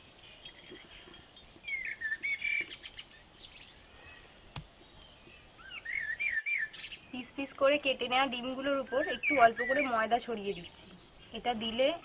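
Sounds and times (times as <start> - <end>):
faint outdoor background noise: 0.0 - 12.0
bird warbling: 8.6 - 11.5.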